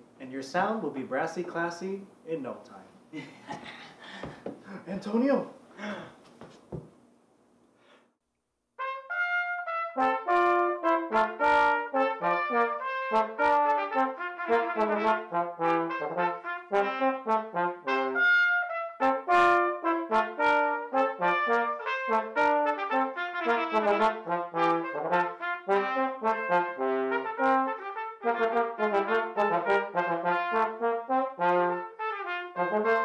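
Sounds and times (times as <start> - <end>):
trumpet and trombone duet: 8.8 - 33.0.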